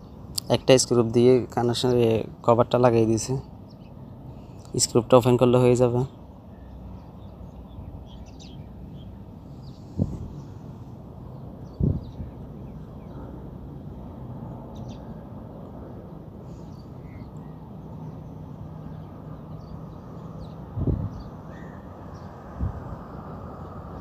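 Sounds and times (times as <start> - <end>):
low outdoor rumble: 0.0 - 24.0
bird calls: 6.0 - 10.6, 16.4 - 22.4.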